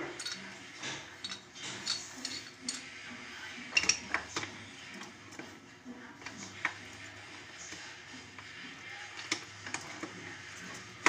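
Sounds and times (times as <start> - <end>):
hard objects clinking and knocking: 0.0 - 3.0.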